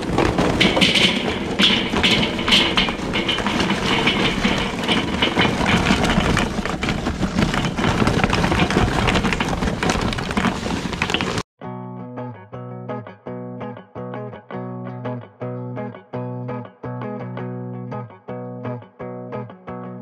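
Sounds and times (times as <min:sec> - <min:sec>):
charcoal pouring onto metal grill: 0:00.0 - 0:11.4.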